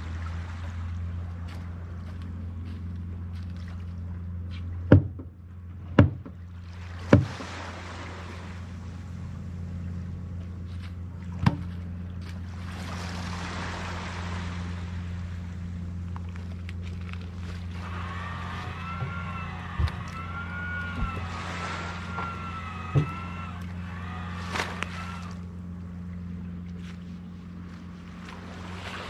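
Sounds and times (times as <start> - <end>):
low motor humming: 0.0 - 29.0
sharp knocks: 4.9 - 5.4, 6.0 - 6.4, 22.9 - 23.2.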